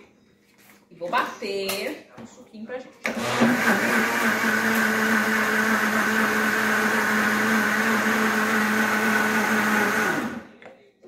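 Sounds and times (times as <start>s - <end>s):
electric blender running: 3.1s - 10.5s.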